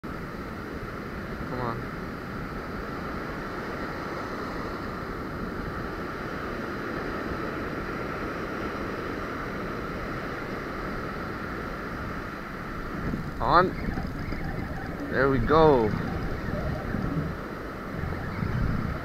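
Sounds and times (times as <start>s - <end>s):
wind buffeting microphone: 12.0s - 19.0s.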